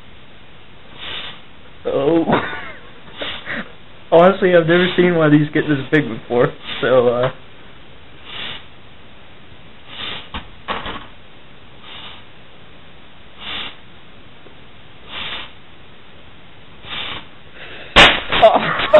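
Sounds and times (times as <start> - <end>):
hissing breath into rubber glove: 0.9 - 1.5, 3.0 - 3.7, 4.7 - 5.1, 6.6 - 7.0, 8.2 - 8.7, 9.8 - 10.4, 11.8 - 12.3, 13.4 - 13.8, 15.0 - 15.6, 16.8 - 18.0.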